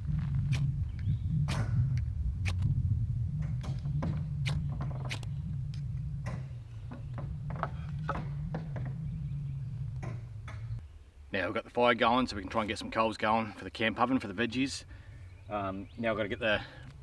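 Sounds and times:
campfire crackling: 0.0s - 7.0s.

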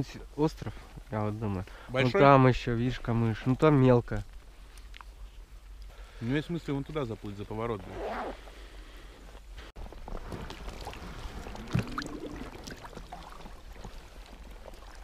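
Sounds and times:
water sloshing and gurgling: 9.8s - 15.0s
small splashes: 9.9s - 15.0s.

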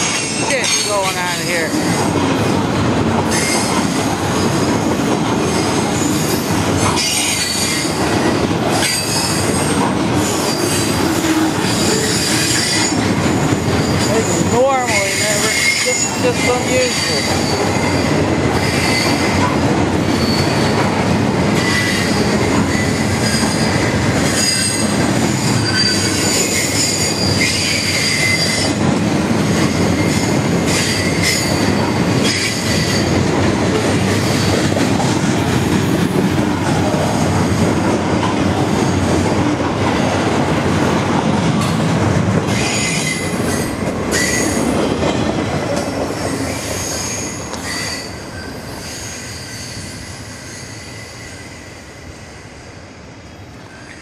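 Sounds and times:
train wheels rumbling on rails: 0.0s - 54.0s
high-pitched metal squealing: 13.8s - 19.5s, 21.6s - 28.8s.

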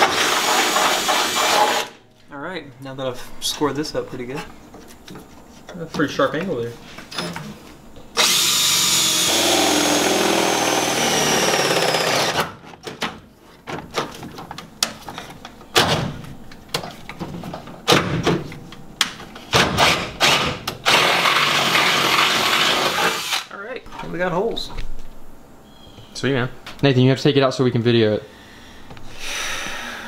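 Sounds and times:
power drill boring through steel: 0.0s - 2.0s, 8.2s - 12.4s, 20.2s - 23.5s.

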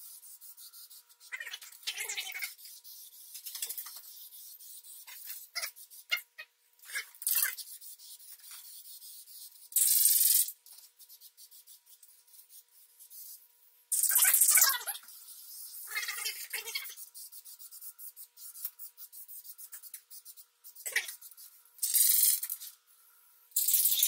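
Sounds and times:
spray paint can hissing: 9.7s - 10.5s, 13.9s - 15.7s, 21.8s - 22.6s, 23.6s - 24.0s.

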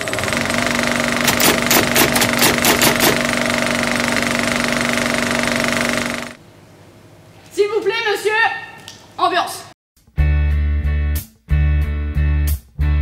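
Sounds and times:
mechanical whirring with flutter: 0.0s - 6.4s
loud clicks: 1.2s - 3.2s.

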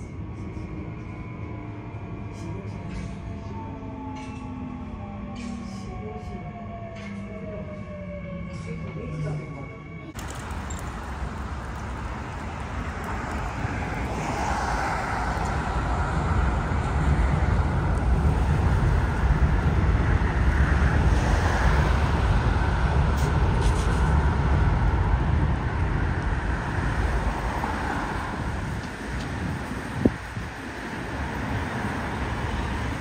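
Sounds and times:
train rumbling over bridge: 0.0s - 33.0s
road traffic hiss: 10.2s - 33.0s.

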